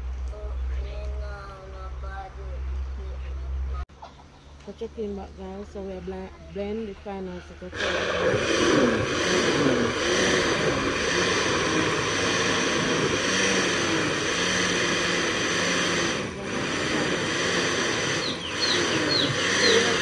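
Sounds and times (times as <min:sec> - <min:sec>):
blender motor running: 0:07.8 - 0:20.0.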